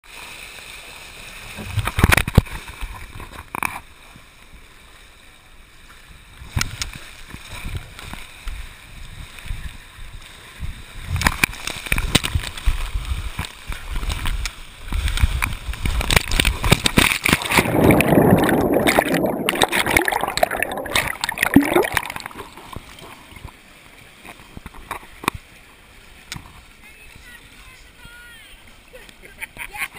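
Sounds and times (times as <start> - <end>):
water rushing and gurgling: 0.1 - 29.7
splashing into pool: 15.9 - 23.5.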